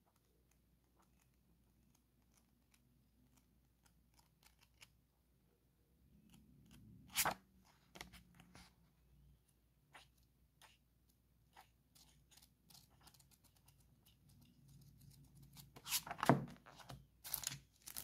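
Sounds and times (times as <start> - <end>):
book pages flipping: 6.2 - 8.9, 11.5 - 18.0.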